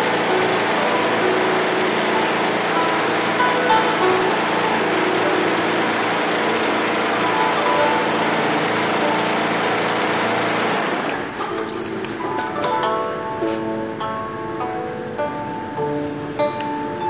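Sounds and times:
sewing machine stitching: 0.0s - 12.7s
plucked-string music: 0.0s - 17.0s.

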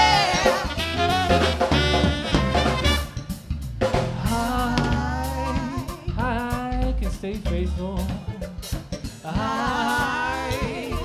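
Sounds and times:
bass line: 0.0s - 11.0s
drum kit beat: 0.0s - 11.0s
live band playing: 0.0s - 11.0s
held melodic parts: 0.1s - 3.5s.

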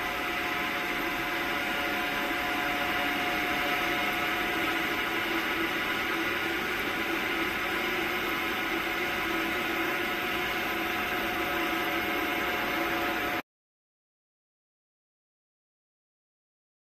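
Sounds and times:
machinery hum with whir: 0.0s - 13.4s.

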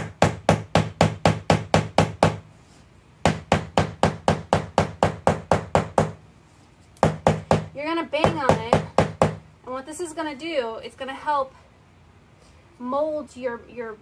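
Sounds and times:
rapid knocking on plastic mold: 0.0s - 2.4s, 3.2s - 6.2s, 7.0s - 9.4s.

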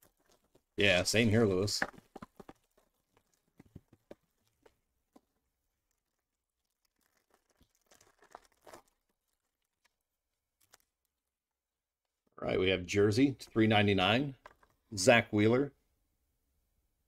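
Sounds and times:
foil wrapper crinkling and tearing: 5.3s - 11.3s.

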